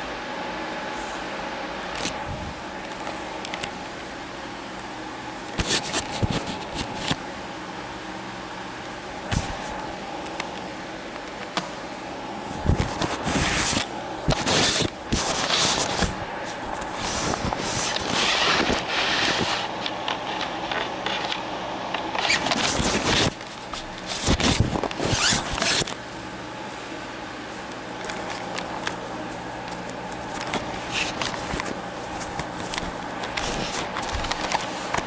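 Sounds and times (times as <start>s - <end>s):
steady low hum: 0.0s - 35.0s
cloth rubbing on microphone: 12.5s - 19.8s, 22.2s - 25.9s, 33.4s - 34.9s.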